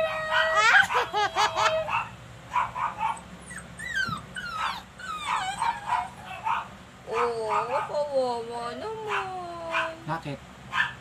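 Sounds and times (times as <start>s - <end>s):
dog whining and yelping: 0.0s - 7.8s.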